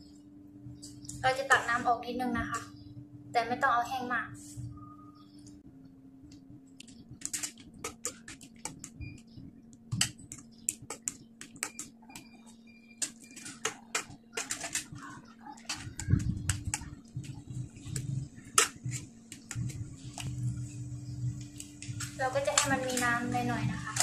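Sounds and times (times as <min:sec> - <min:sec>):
metal spoon scraping a pan: 0:13.0 - 0:15.0.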